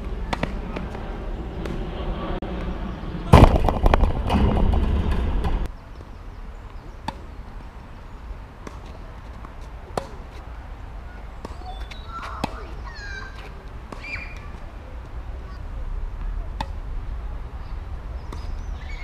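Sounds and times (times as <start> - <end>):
steady low rumble: 0.0 - 5.8
sudden loud rush of noise: 1.2 - 5.7.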